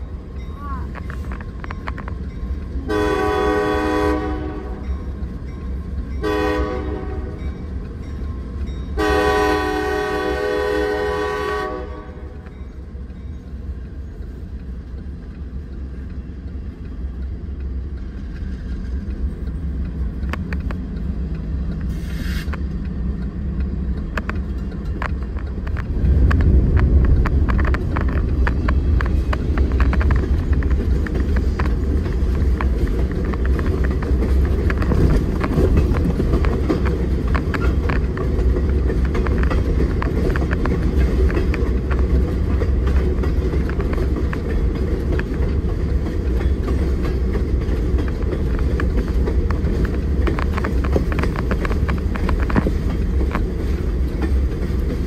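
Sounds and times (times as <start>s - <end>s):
train rumbling: 0.0s - 55.0s
diesel locomotive horn blasts: 2.8s - 4.9s, 6.2s - 7.5s, 9.0s - 12.4s.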